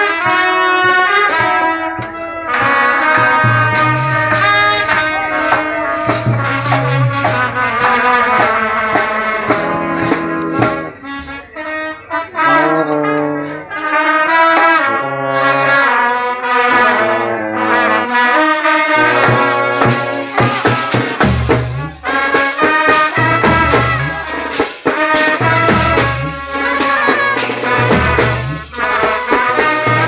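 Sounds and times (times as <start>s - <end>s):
brass band playing: 0.0s - 30.0s
rattling percussion: 0.3s - 11.4s, 19.0s - 30.0s.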